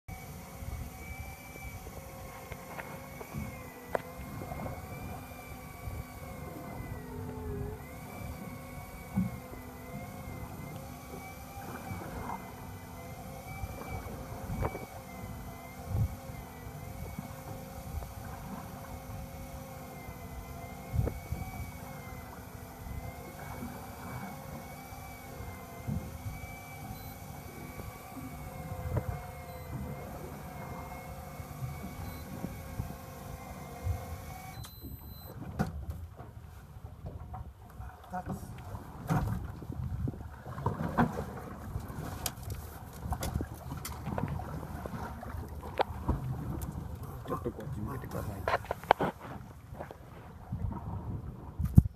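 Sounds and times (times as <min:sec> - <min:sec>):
electric reel motor whining: 0:00.1 - 0:35.5
boat engine running: 0:00.1 - 0:51.9.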